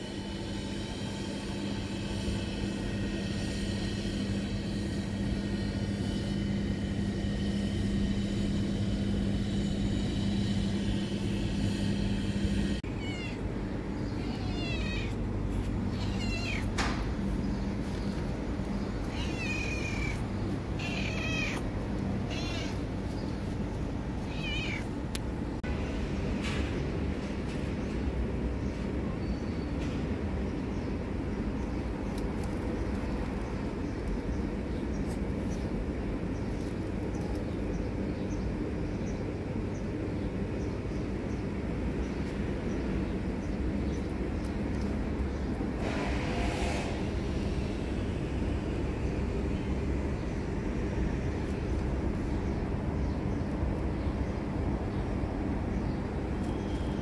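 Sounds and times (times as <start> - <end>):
steady low hum: 0.0 - 29.2
street traffic rumble: 0.0 - 57.0
cat meowing: 12.8 - 15.2, 15.9 - 16.8, 19.1 - 20.2, 20.8 - 22.9, 24.2 - 24.9.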